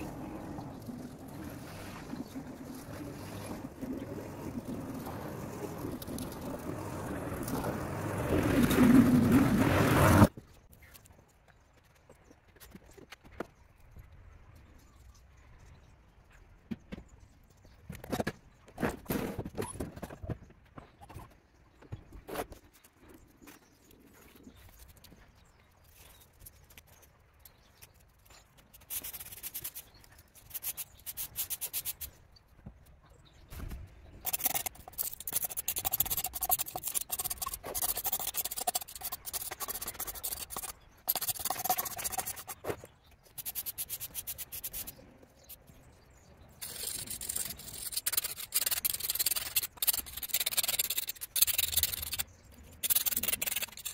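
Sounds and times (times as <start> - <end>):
hand tool scraping a surface: 34.3 - 42.8, 46.6 - 52.2, 52.8 - 53.9.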